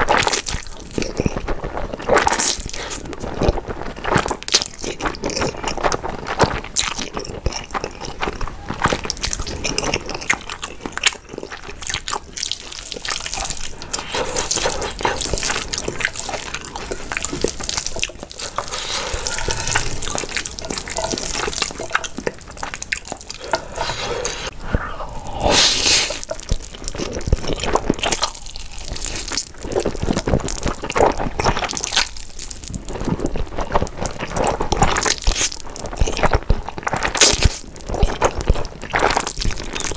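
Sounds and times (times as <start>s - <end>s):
wet slurping and chewing: 0.0s - 39.9s.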